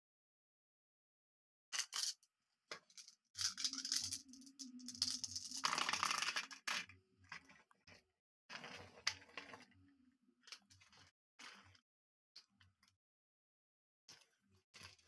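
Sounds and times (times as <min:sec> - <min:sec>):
glass marbles clinking: 0:03.4 - 0:06.6.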